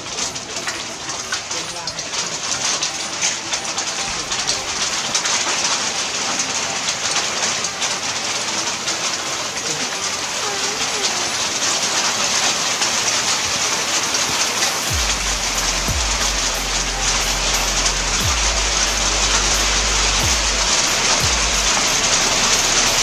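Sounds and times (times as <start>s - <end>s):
rain falling through foliage: 0.0s - 23.0s
low hum: 14.9s - 23.0s.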